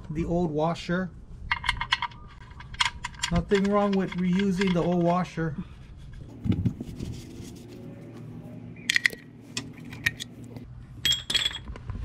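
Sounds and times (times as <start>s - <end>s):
ratchet metallic clicks: 1.5s - 5.1s.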